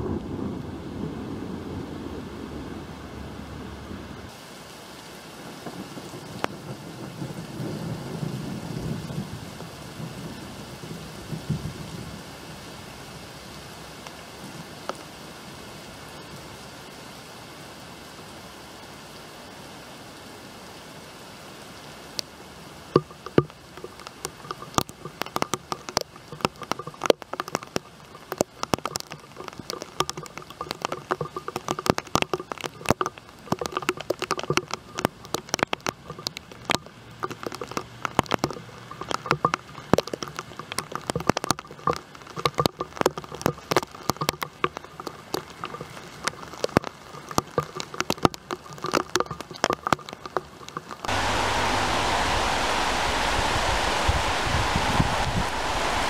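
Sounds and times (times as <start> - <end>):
steady rain hiss: 0.0 - 56.0
raindrops tapping close: 5.5 - 12.3, 13.8 - 15.2, 22.1 - 56.0.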